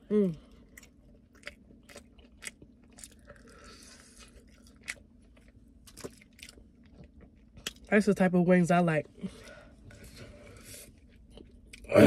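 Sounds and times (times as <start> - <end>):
chewing food: 0.3 - 7.9, 9.2 - 12.0.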